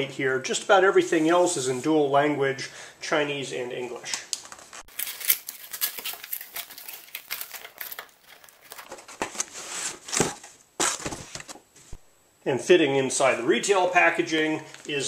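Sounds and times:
cardboard scraping and rustling: 5.0s - 12.0s.

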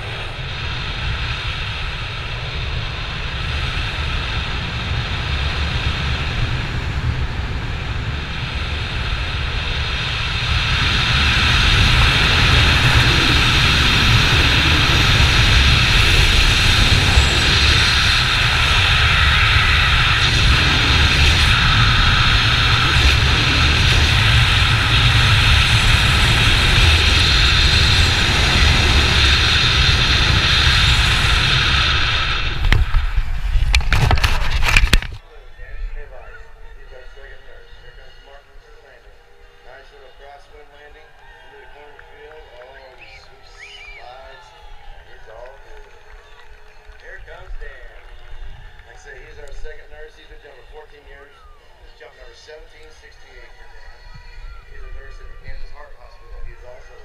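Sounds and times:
wind rushing over microphone: 0.0s - 37.6s, 40.2s - 57.0s.

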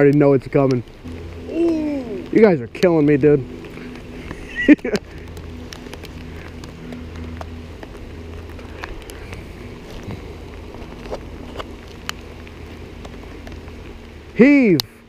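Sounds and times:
rain: 0.0s - 15.0s
raindrops ticking on camera: 0.0s - 15.0s
steady low hum: 0.6s - 15.0s.

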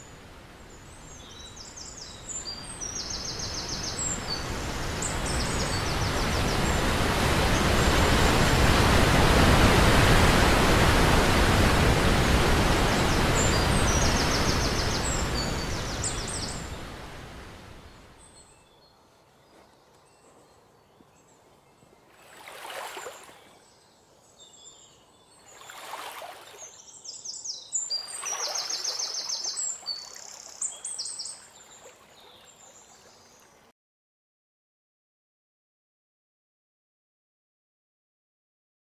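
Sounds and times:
waterfall rushing: 4.7s - 17.7s.

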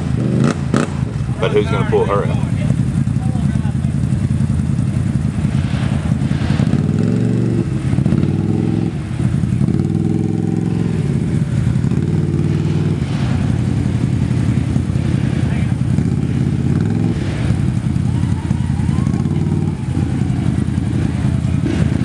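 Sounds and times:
atv engine revving: 0.0s - 22.0s
engine rumble: 0.0s - 22.0s.

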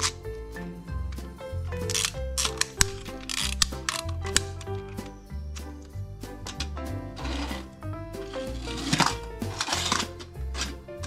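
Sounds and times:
background music with bass line: 0.0s - 11.0s.

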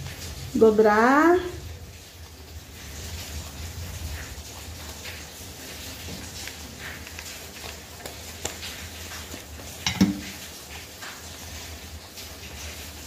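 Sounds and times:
foam strips rustling: 1.7s - 13.0s
knock on hard surface: 9.8s - 10.2s.

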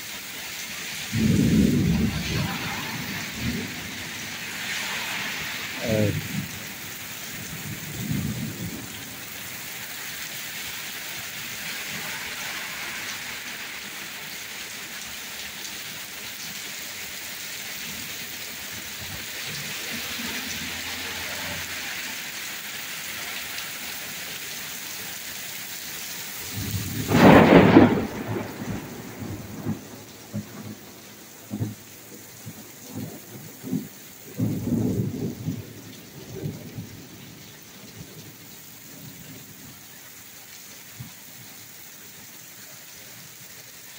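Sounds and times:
heavy rain on pavement: 0.0s - 43.9s
thunderclap and rumbling: 1.1s - 9.0s, 26.4s - 30.8s, 33.6s - 37.0s.

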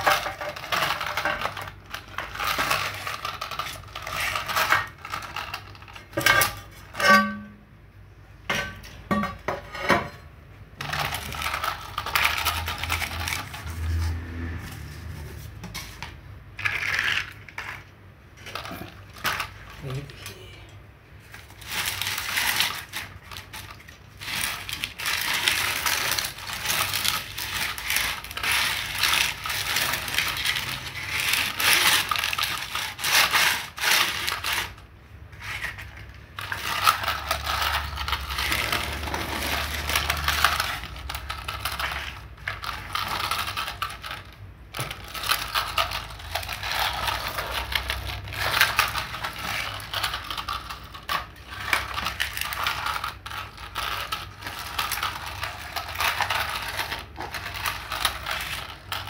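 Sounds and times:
toy tractor rolling on concrete: 0.0s - 7.0s, 10.8s - 20.5s, 21.2s - 59.0s.

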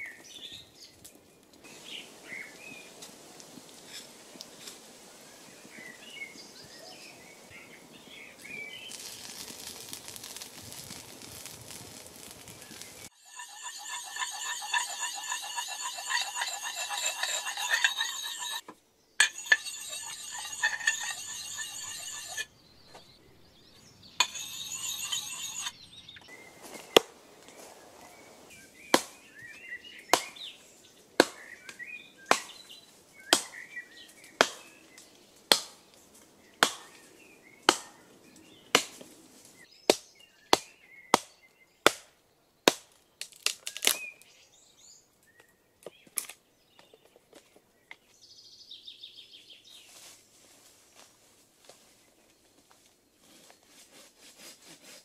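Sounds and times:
sharpening stone rasping on axe: 13.1s - 18.6s, 19.2s - 22.5s, 24.2s - 25.8s
axe chopping wood: 28.9s - 29.2s, 31.2s - 31.5s, 32.3s - 32.6s, 33.3s - 33.6s, 34.4s - 34.7s, 35.5s - 35.8s, 36.6s - 37.0s, 37.7s - 38.0s, 38.8s - 39.0s, 39.9s - 42.1s.

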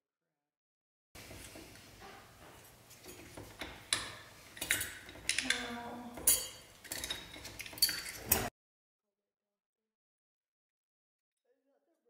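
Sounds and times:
metallic clicks and clinks: 2.6s - 8.5s.

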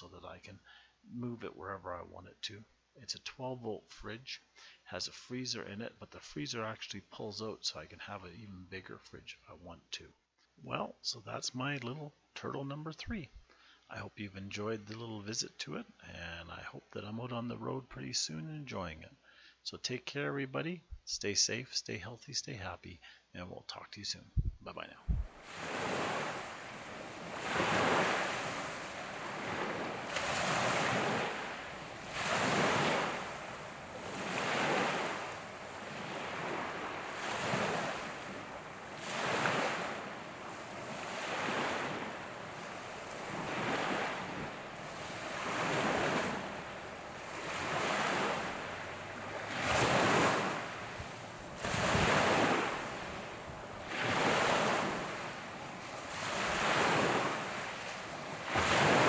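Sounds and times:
wind: 0.0s - 4.0s, 24.0s - 59.0s
small waves on gravel shore: 25.3s - 59.0s.

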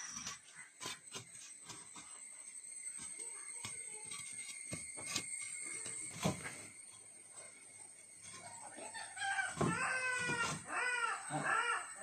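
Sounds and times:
bricks knocking and scraping: 0.0s - 2.2s, 3.0s - 6.7s.

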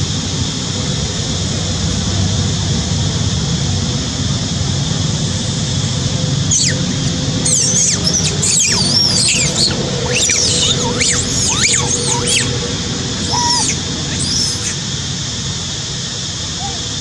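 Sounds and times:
constant high hiss: 0.0s - 17.0s
outdoor background rumble: 0.0s - 17.0s
high squeal falling in pitch: 6.5s - 14.8s.

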